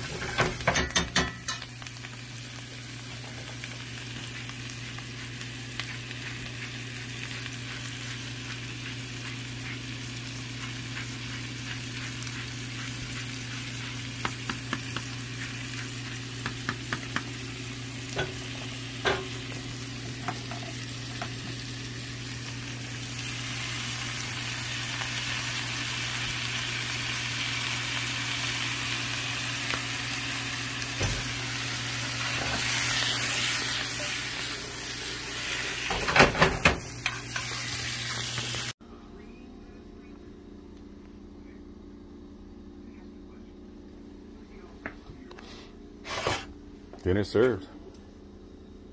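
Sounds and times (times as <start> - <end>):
potatoes sizzling in a pan: 0.0 - 38.8.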